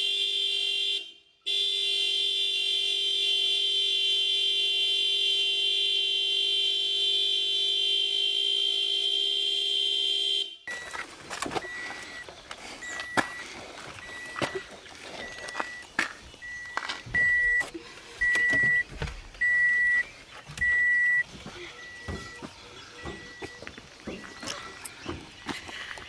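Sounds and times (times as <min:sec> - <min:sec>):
car warning chime beeping: 0:10.4 - 0:25.1.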